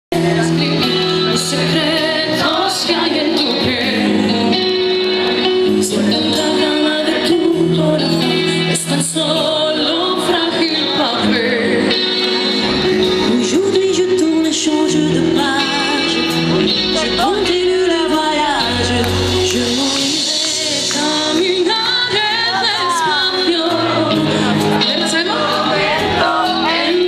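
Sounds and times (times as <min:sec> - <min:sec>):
loud amplified band music: 0:00.1 - 0:27.0
woman singing into a microphone: 0:00.2 - 0:27.0.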